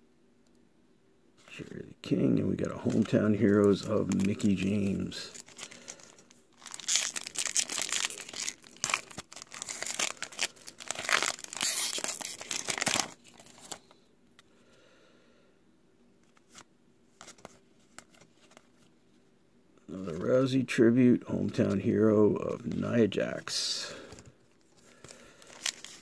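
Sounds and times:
wrapper tearing and crinkling: 2.8 - 13.8, 24.9 - 26.0.

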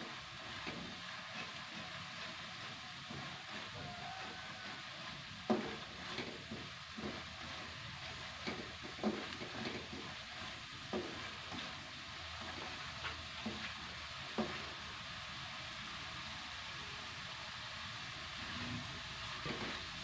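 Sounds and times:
spatula scraping a pan: 0.0 - 14.8
paste sizzling in oil: 0.0 - 20.0.

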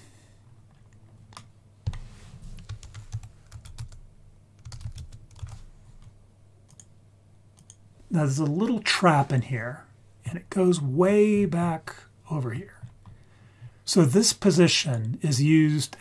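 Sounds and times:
computer keyboard typing: 2.6 - 4.0, 4.6 - 6.9, 7.6 - 7.8.

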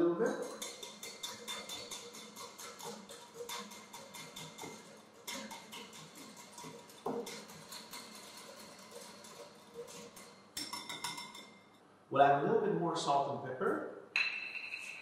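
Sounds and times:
whisk tapping against bowl: 0.4 - 11.6.

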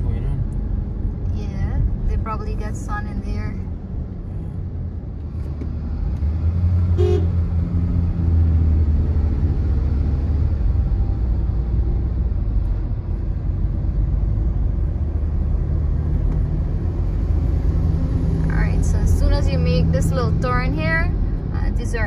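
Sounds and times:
car engine and tyres rumbling: 0.0 - 22.0
car horn toot: 7.0 - 7.4.

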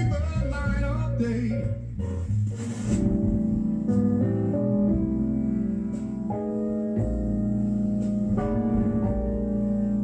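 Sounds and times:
sustained keyboard chords: 0.0 - 10.0.

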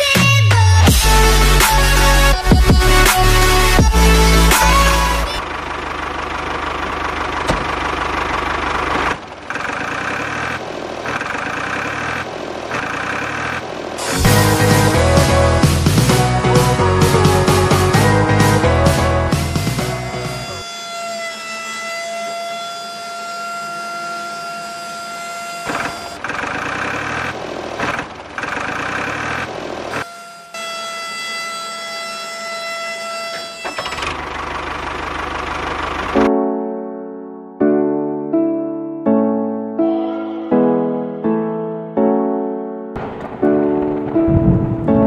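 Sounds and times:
tractor engine revving: 0.6 - 32.4, 33.3 - 36.3, 43.0 - 45.0
miniature tractor engine chugging: 5.4 - 13.5.

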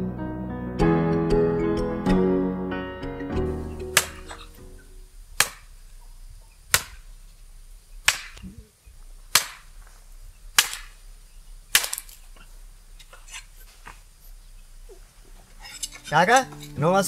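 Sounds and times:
blade chopping bamboo: 3.9 - 4.5, 5.4 - 5.8, 6.7 - 7.1, 8.0 - 8.4, 9.3 - 9.8, 10.5 - 11.0, 11.7 - 12.2.

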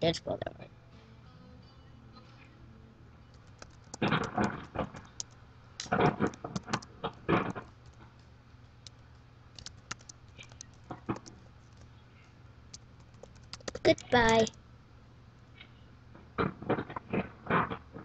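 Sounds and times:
keyboard typing: 3.3 - 8.3, 8.9 - 11.9, 12.7 - 14.6.

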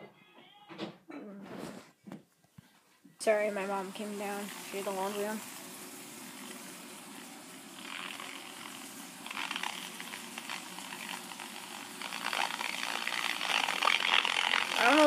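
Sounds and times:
radio static hiss and crackle: 6.3 - 15.0.

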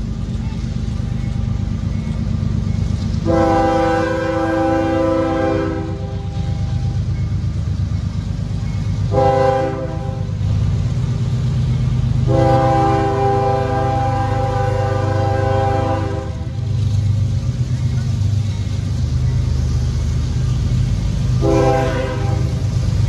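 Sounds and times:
locomotive air horn blasts: 3.2 - 6.6, 9.1 - 10.4, 12.2 - 16.6, 21.4 - 22.7.

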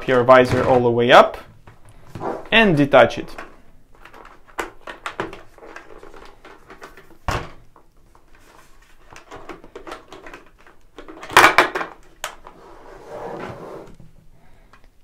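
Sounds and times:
plastic clicks and rustling: 3.3 - 12.6
plastic visor clattering: 3.3 - 12.6.

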